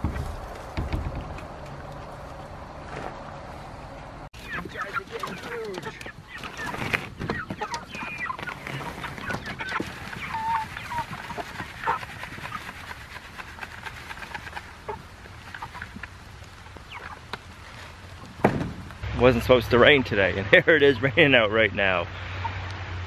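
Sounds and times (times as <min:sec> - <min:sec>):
sharp knocks and rattles: 0:00.0 - 0:03.1
chickens clucking and peeping: 0:03.6 - 0:18.4, 0:22.2 - 0:22.8.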